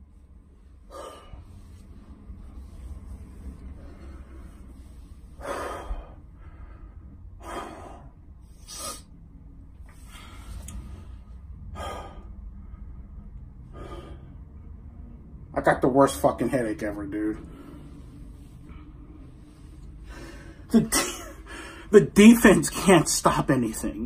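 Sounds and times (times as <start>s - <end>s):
low steady hum: 0.0s - 24.0s
man breathing heavily and sighing: 0.7s - 9.1s, 9.9s - 14.8s, 17.4s - 22.0s.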